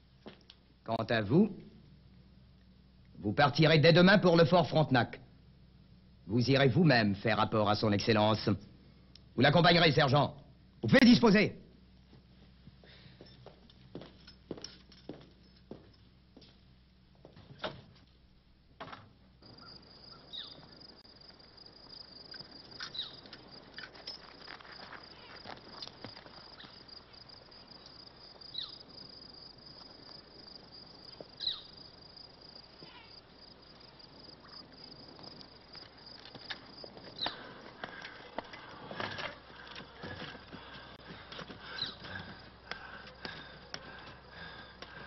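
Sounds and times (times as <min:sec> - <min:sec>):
cricket trill: 0:19.4 - 0:45.0.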